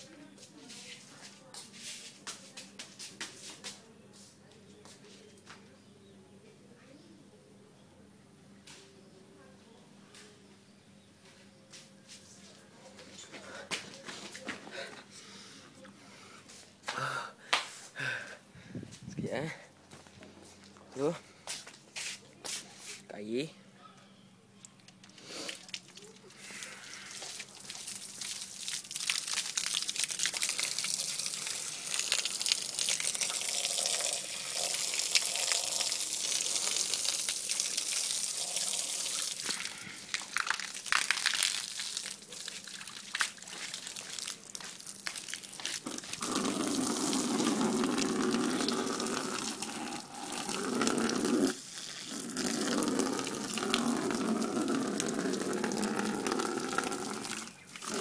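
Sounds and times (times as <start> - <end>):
water gushing from garden hose: 25.2 - 58.0.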